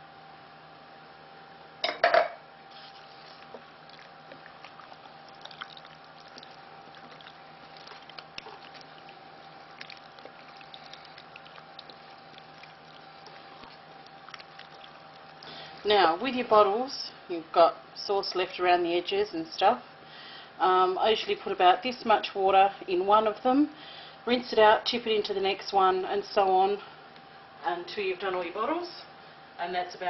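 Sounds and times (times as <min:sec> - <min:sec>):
spoon stirring thick sauce: 0:02.8 - 0:15.6.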